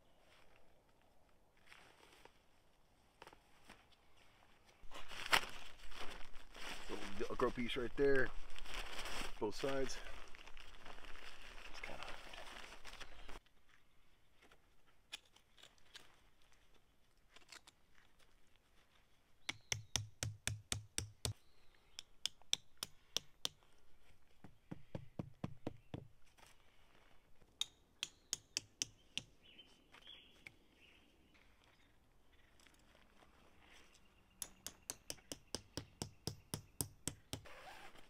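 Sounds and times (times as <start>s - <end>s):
rapid sharp knocks with thuds: 19.5s - 21.4s, 24.4s - 26.1s.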